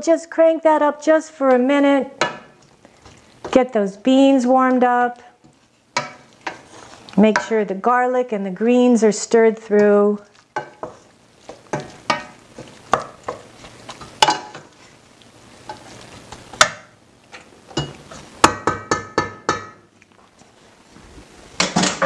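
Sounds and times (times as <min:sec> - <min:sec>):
spatula knocking and scraping pan: 0:01.4 - 0:03.7, 0:05.4 - 0:07.6, 0:10.5 - 0:14.9, 0:15.6 - 0:19.9.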